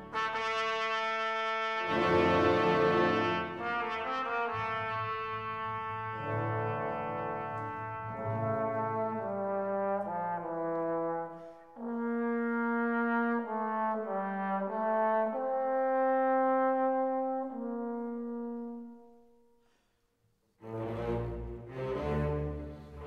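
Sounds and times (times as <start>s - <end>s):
slow brass melody: 0.0s - 19.8s.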